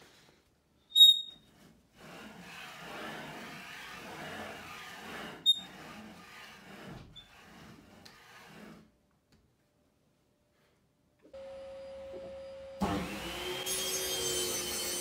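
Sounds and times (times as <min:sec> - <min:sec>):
plywood carriage sliding on rods: 0:01.4 - 0:09.0.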